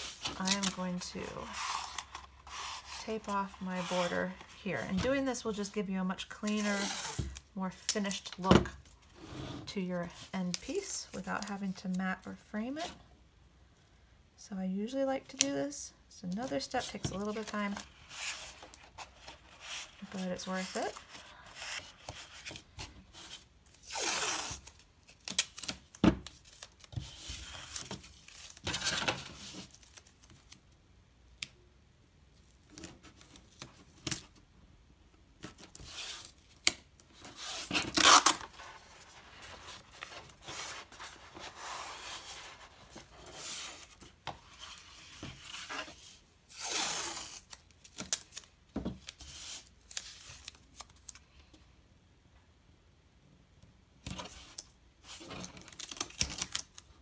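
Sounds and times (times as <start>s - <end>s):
tape ripping off roll: 37.5s - 38.5s.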